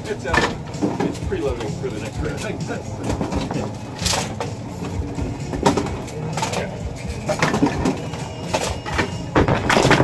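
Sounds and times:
bowling pins clattering: 0:05.5 - 0:10.0.

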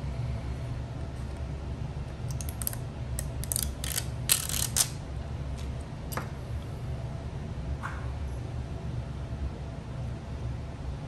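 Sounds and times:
steady low hum: 0:00.0 - 0:11.0
repair tools clicking and scraping: 0:02.3 - 0:05.0.

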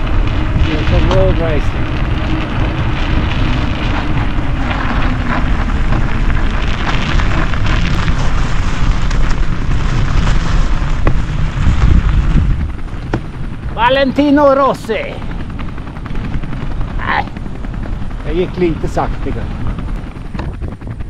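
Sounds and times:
bicycle tyres on snow: 0:00.0 - 0:21.0
wind rumble on microphone: 0:00.0 - 0:21.0.

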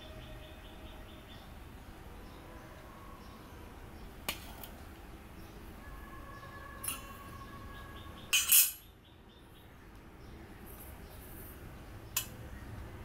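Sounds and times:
metal spoon clinking steel bowls: 0:06.8 - 0:07.2, 0:08.3 - 0:08.8.

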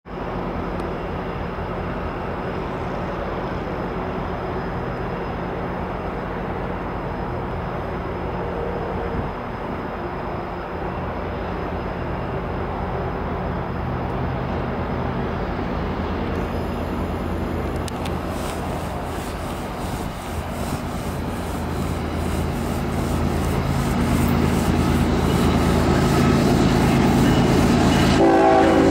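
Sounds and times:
diesel locomotive engine rumbling: 0:00.1 - 0:28.9.

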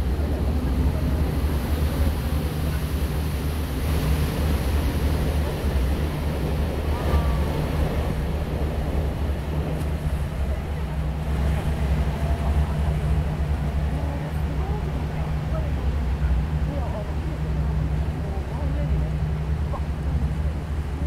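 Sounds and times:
boat engine rumble: 0:00.0 - 0:21.0
water wash: 0:00.0 - 0:21.0
wind buffeting microphone: 0:00.0 - 0:21.0.

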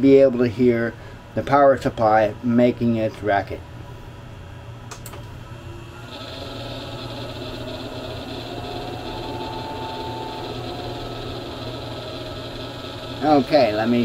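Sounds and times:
cooling fan with rattling bearings: 0:04.8 - 0:14.0.

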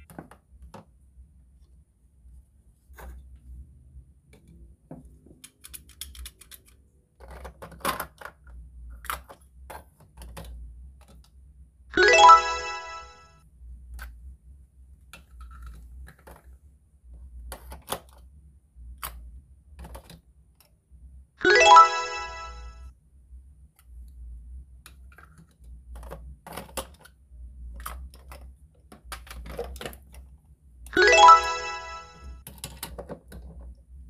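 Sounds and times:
plastic toy pieces clicking: 0:05.5 - 0:08.2
bright chime: 0:12.0 - 0:13.2, 0:21.4 - 0:22.8, 0:31.0 - 0:32.3.

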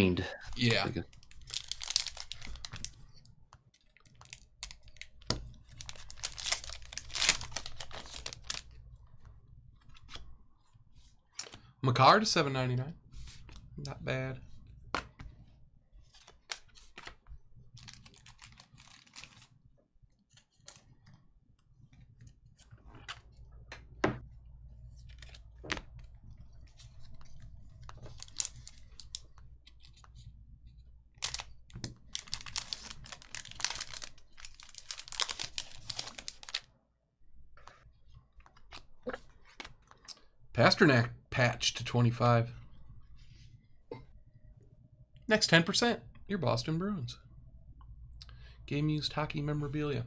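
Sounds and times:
foil wrappers crinkling and tearing: 0:00.6 - 0:03.0, 0:03.7 - 0:08.8, 0:17.7 - 0:19.6, 0:27.9 - 0:29.4, 0:31.2 - 0:36.7.

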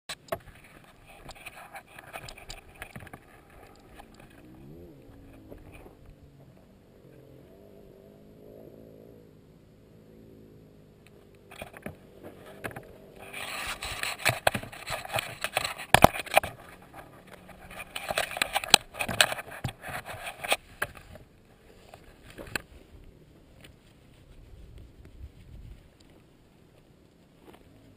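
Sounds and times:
dirt bike engine revving: 0:03.2 - 0:14.3
rushing scraping noise in sand: 0:12.2 - 0:25.9.

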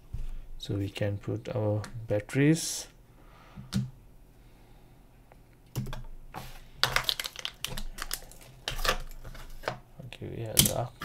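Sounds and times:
plastic parts clicking: 0:10.4 - 0:10.9.

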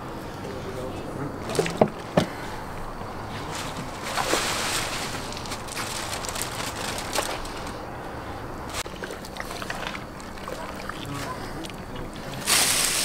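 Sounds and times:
wet squelching and sloshing: 0:08.7 - 0:13.0.

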